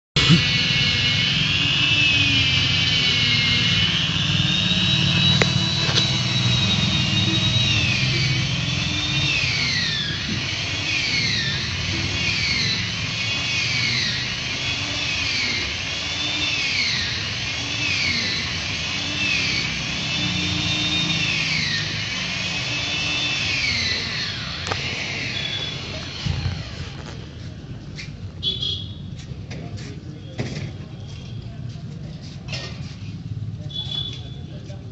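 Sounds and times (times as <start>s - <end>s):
chainsaw cutting: 0.2s - 27.3s.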